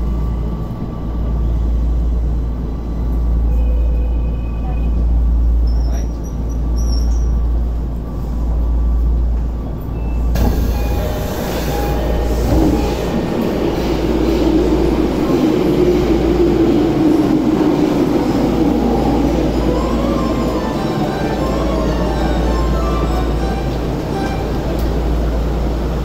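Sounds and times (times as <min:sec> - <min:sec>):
busy station noise: 0:00.0 - 0:26.0
train equipment humming: 0:00.0 - 0:26.0
train doors sliding open: 0:09.3 - 0:26.0.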